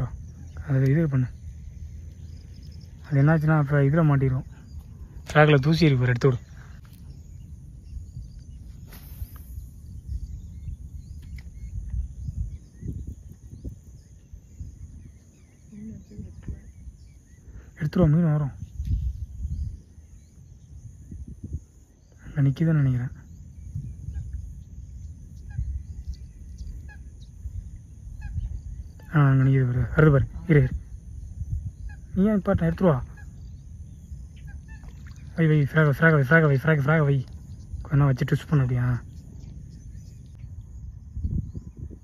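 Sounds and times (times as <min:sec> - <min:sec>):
faint bird chirps: 0:00.0 - 0:42.0
insect drone: 0:00.0 - 0:42.0
wind rumble on microphone: 0:00.0 - 0:42.0
short bird chirps: 0:06.4 - 0:17.8
brief hiss: 0:08.7 - 0:09.8.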